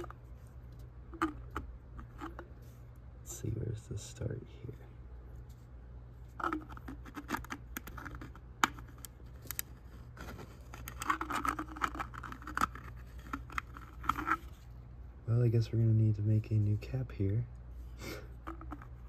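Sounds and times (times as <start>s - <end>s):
plastic cap scraping and clicking: 0.0s - 2.6s, 6.3s - 14.6s, 18.4s - 19.0s.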